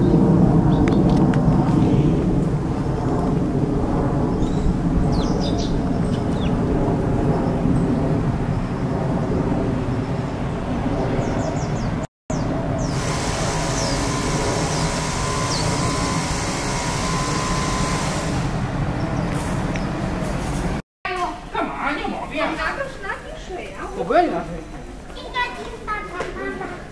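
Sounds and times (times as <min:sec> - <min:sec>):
dense traffic rumble: 0:00.0 - 0:20.8
hiss: 0:12.8 - 0:18.6.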